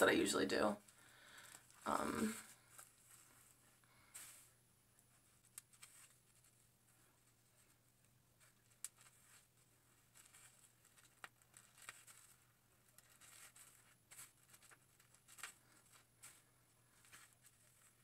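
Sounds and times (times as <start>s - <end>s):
hair rustling through holes: 0.0s - 7.8s.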